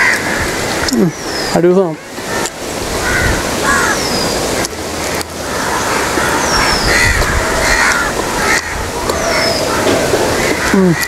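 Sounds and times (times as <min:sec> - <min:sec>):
wind noise on microphone: 0:00.0 - 0:01.5, 0:02.1 - 0:11.0
crows cawing: 0:00.0 - 0:11.0.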